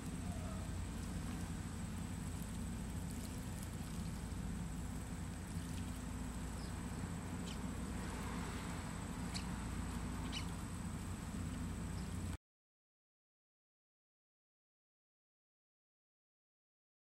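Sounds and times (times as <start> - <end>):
steady low hum: 0.0 - 12.4
sparrow chirps: 6.4 - 7.8, 9.1 - 10.8.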